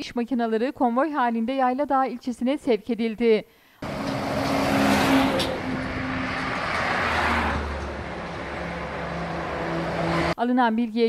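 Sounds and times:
heavy trucks passing: 0:03.8 - 0:10.4.

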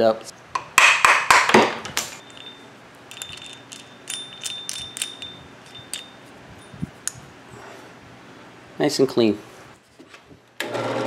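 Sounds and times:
light metallic clinks and taps: 0:02.2 - 0:07.2.

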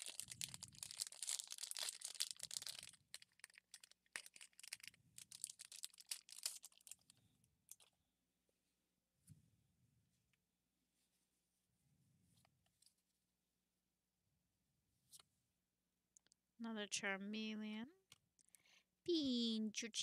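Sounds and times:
foil wrapper tearing and crinkling: 0:00.0 - 0:07.1.

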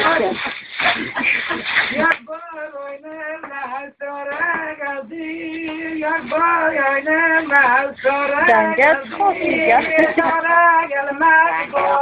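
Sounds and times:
woman singing slowly: 0:08.3 - 0:10.4.

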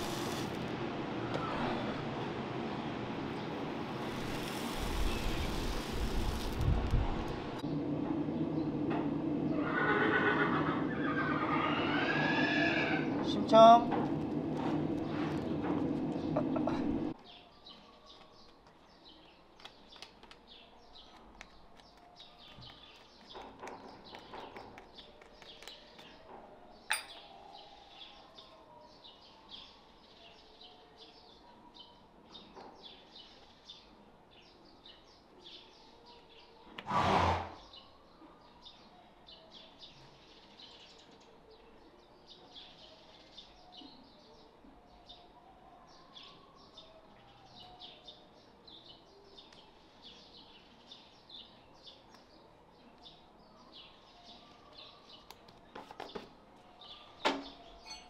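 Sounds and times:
small birds chirping: 0:15.0 - 0:36.8, 0:37.6 - 0:58.0.

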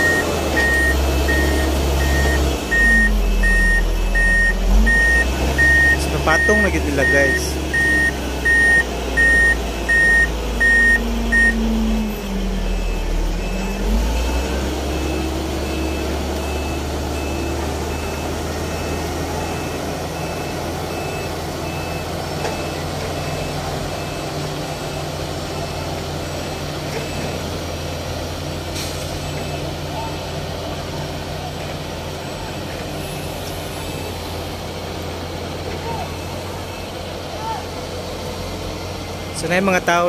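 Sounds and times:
backup alarm beeping: 0:00.0 - 0:24.3
faint backup beeper: 0:00.0 - 0:26.0, 0:35.7 - 0:37.6
diesel engine running: 0:00.0 - 0:40.0.

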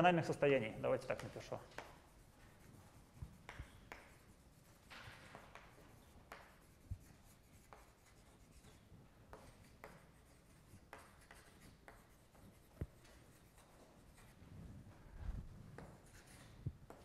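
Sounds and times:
chalk scratching on chalkboard: 0:00.6 - 0:15.0, 0:15.6 - 0:17.0.

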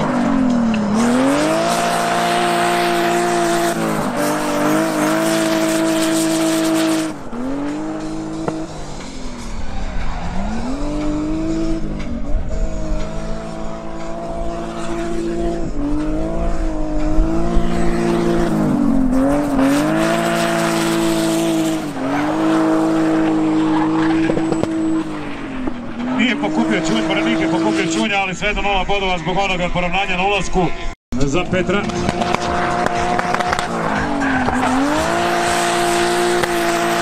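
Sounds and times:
car engine revving high: 0:00.0 - 0:28.1, 0:31.2 - 0:37.0
tyres squealing: 0:33.0 - 0:37.0.

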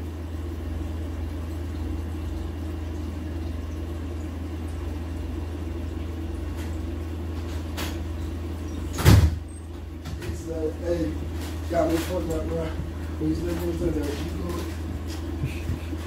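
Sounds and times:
aquarium filter humming: 0:00.0 - 0:16.0.

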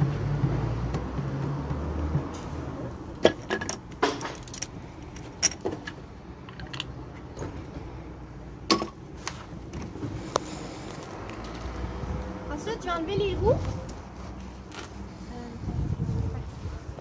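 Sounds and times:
parts set down on concrete: 0:03.2 - 0:07.6
metallic clicks and clinks: 0:03.4 - 0:07.0.

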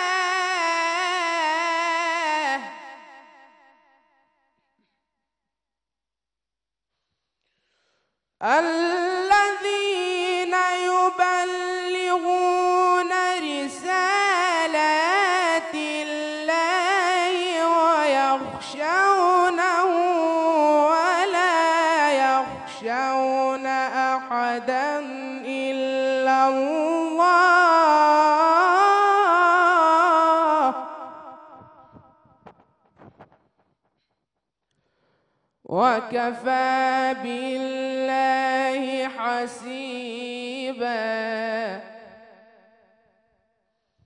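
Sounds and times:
boy reciting melodically: 0:00.0 - 0:03.5, 0:08.4 - 0:31.8, 0:35.7 - 0:42.1.

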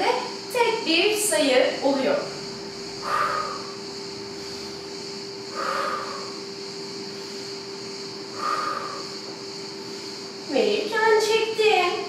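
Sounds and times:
background hiss and hum: 0:00.0 - 0:12.0
woman breathing out hard: 0:03.0 - 0:03.8, 0:05.5 - 0:06.5, 0:08.3 - 0:09.2.

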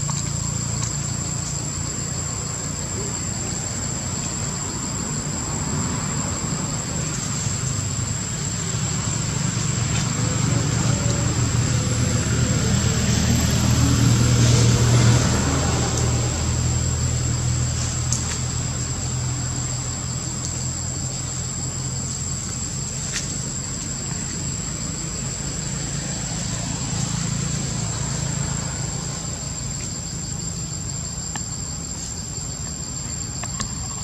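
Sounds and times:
crickets droning: 0:00.0 - 0:34.0.

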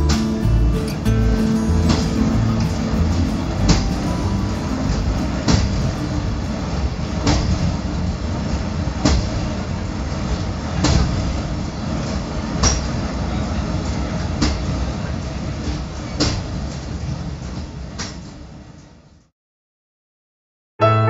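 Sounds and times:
diesel railcar engine idling: 0:00.0 - 0:16.0.

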